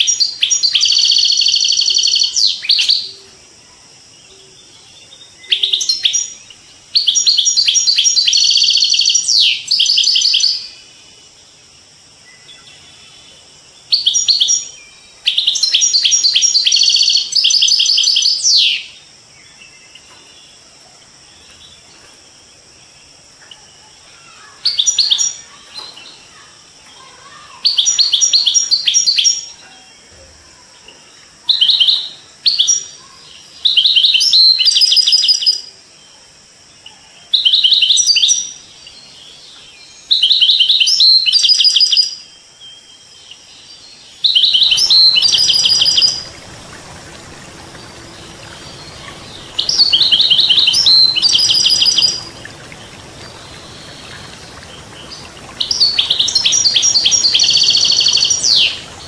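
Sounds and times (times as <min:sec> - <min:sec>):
running water murmur: 0:00.0 - 0:36.0, 0:44.2 - 0:59.0
goldfinch twittering and trilling: 0:44.2 - 0:59.0.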